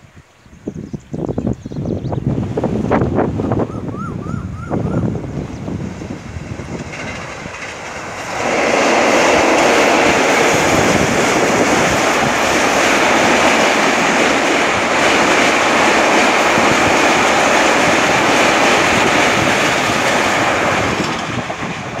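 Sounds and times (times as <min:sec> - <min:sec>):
train rumbling over a steel bridge: 0:00.0 - 0:22.0
train wheel clatter: 0:05.4 - 0:22.0.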